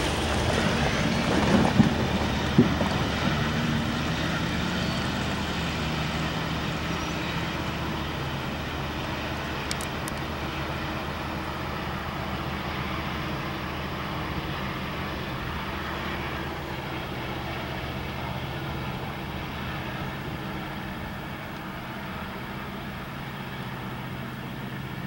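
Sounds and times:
diesel locomotive engine droning: 0.0 - 25.0
train rumbling on rails: 0.0 - 25.0
faint high clicks: 9.6 - 10.3.

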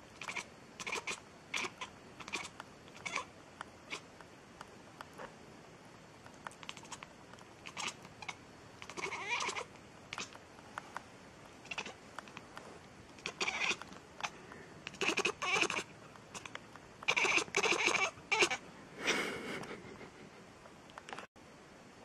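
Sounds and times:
cat meowing: 7.7 - 10.3, 13.2 - 13.8, 14.9 - 15.8, 17.1 - 18.6.

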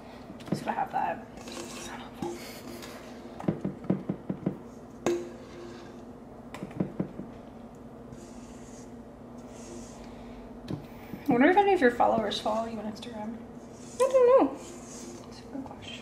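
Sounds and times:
steady low hum: 0.0 - 16.0
spatula knocking on mixing bowl: 6.6 - 7.3.

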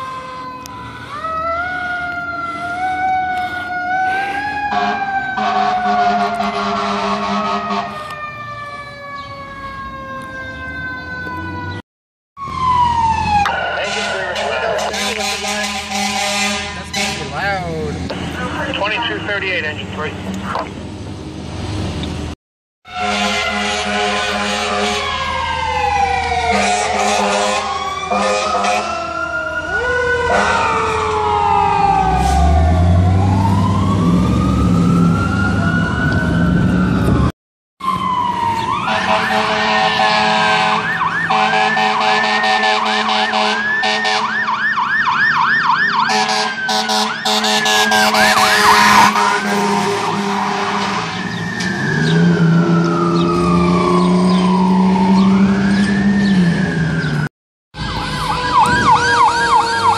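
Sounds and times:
fire engine siren wailing: 0.0 - 11.8, 12.4 - 20.7, 22.8 - 59.9
low horn tones: 4.7 - 8.0, 13.8 - 17.6, 22.8 - 25.2, 26.4 - 29.0, 38.8 - 44.3, 46.1 - 55.6
siren fast yelp: 24.8 - 57.0, 57.8 - 59.9.

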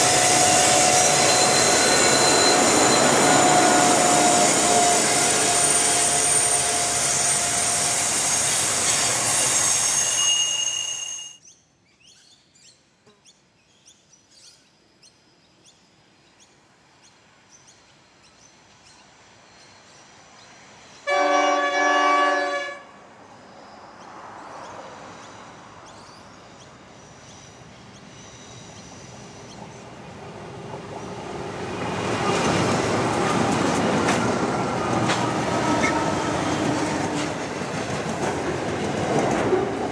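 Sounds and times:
locomotive horn: 0.0 - 8.0, 21.1 - 23.0, 34.7 - 37.4
diesel locomotive engines: 0.0 - 11.4, 23.8 - 39.9
freight wagon wheels squealing: 0.0 - 11.4.

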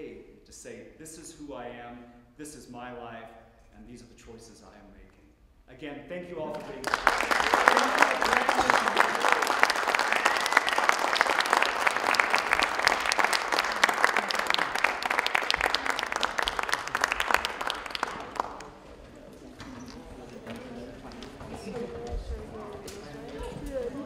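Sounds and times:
audience applauding: 6.4 - 19.6.

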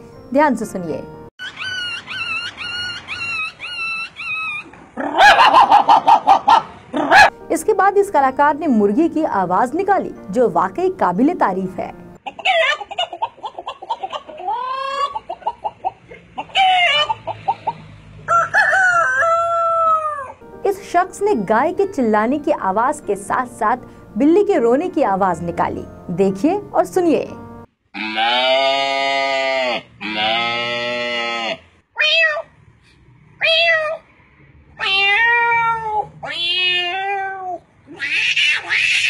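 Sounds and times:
man imitating hen clucking: 1.5 - 7.3, 12.2 - 20.3, 28.0 - 31.6.

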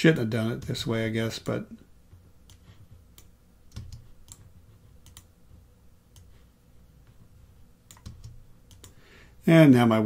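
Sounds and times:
faint computer mouse clicks: 2.4 - 5.3, 6.1 - 6.4, 7.9 - 9.0.

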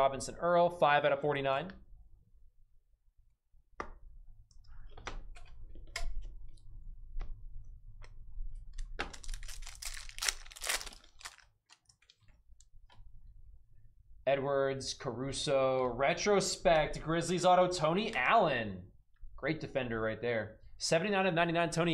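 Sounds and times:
wrapper crinkling and tearing: 8.7 - 12.4.

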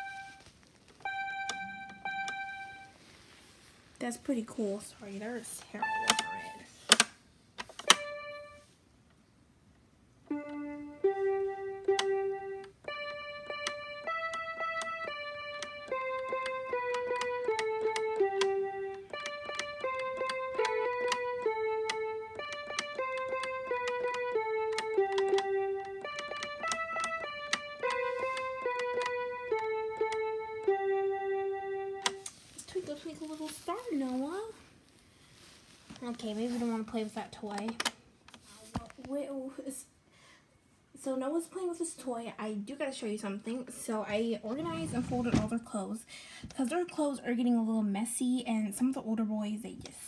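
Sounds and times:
electronic toy piano tune: 0.0 - 3.0, 5.8 - 6.6, 7.8 - 8.7, 10.3 - 32.2.

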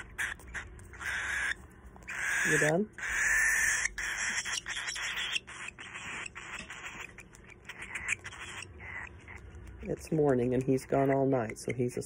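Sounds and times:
bird chick begging calls: 0.0 - 9.6.

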